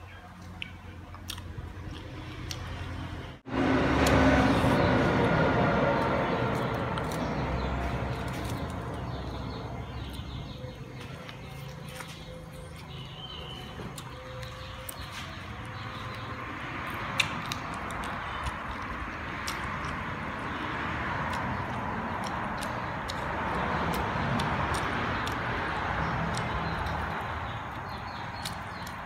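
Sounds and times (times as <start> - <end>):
chicken wing crunching when chewed: 0.4 - 3.1, 16.8 - 29.0.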